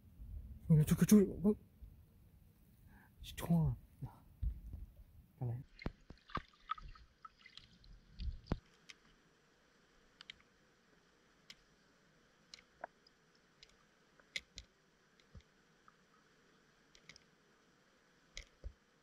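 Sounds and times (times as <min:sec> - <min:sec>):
low hiss: 0:00.0 - 0:19.0
faint sharp underwater clicks: 0:10.1 - 0:10.6, 0:11.4 - 0:11.7, 0:12.4 - 0:18.9.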